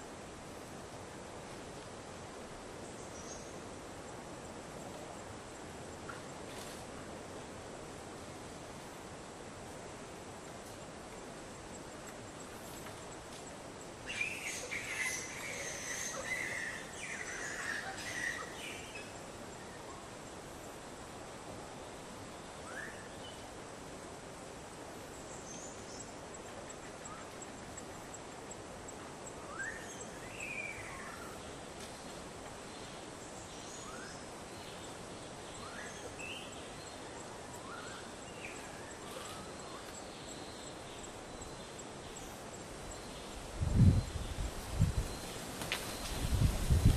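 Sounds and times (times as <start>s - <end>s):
faint outdoor background: 0.0s - 46.9s
forest background hiss: 0.0s - 46.9s.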